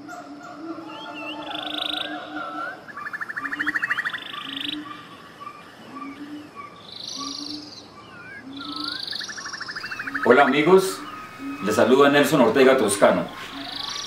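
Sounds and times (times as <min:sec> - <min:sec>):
rapid rattling trills: 0:09.1 - 0:14.0.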